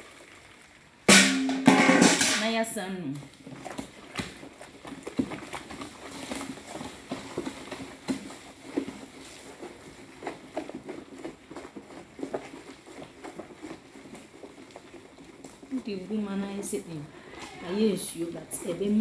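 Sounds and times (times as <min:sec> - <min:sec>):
stick scraping and knocking bowl: 0:01.1 - 0:02.6.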